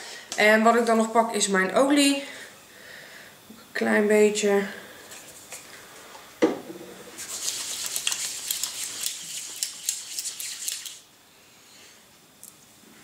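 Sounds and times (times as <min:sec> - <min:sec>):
palms rubbing together: 0:07.2 - 0:11.0.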